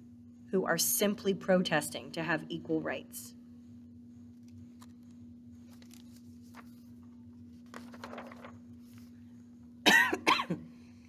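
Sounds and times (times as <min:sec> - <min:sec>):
book page turning: 0:04.3 - 0:09.2
woman coughing: 0:09.8 - 0:10.7.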